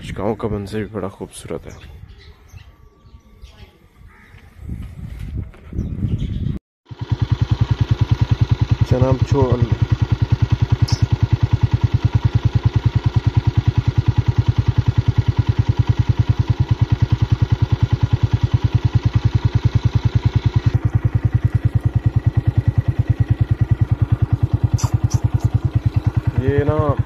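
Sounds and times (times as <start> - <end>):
motorcycle engine idling: 6.9 - 27.0.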